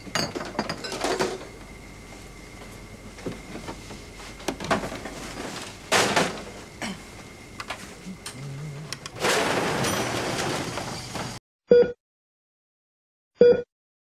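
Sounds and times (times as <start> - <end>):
faint high hum: 0.0 - 10.2
plastic crate of bottles rattling: 4.4 - 6.8, 9.1 - 11.4.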